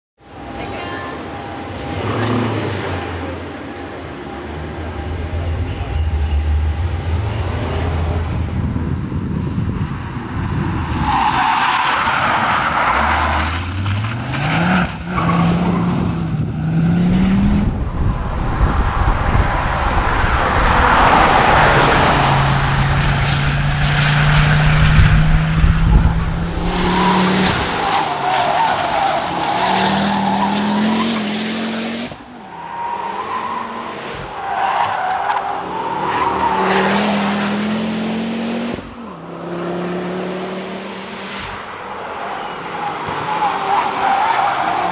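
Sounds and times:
car engine accelerating hard: 0:12.1 - 0:32.2, 0:35.0 - 0:41.6.

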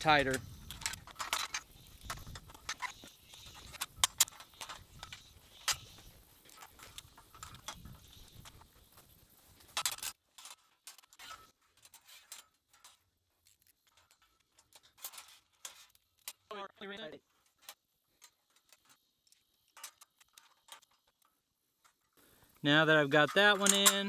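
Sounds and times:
metal parts clinking: 0:00.0 - 0:09.0, 0:17.4 - 0:22.1, 0:22.9 - 0:24.0
metal clanks: 0:23.1 - 0:24.0.

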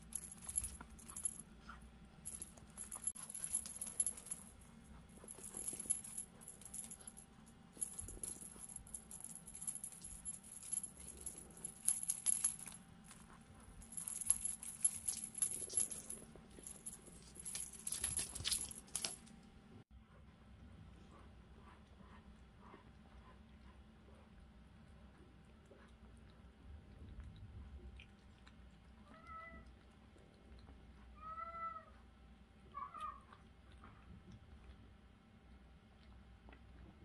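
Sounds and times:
small jingle bell jingling: 0:00.0 - 0:01.4, 0:02.2 - 0:07.2, 0:07.8 - 0:19.3.

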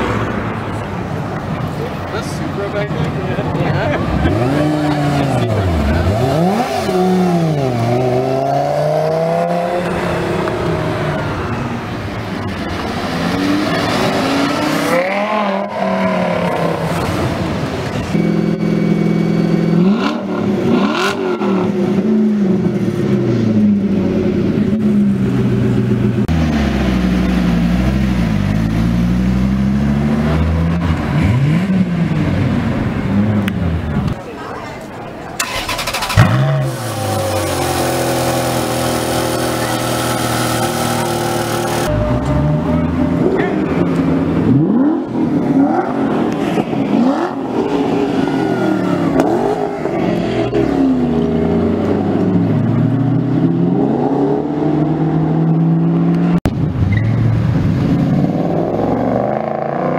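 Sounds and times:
sports car engines revving: 0:00.0 - 0:59.9.

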